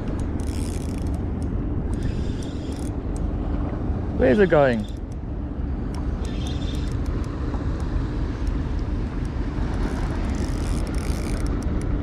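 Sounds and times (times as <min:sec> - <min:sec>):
fishing reel ticking: 0:00.1 - 0:03.2, 0:04.7 - 0:05.2, 0:05.9 - 0:07.3, 0:09.2 - 0:11.9.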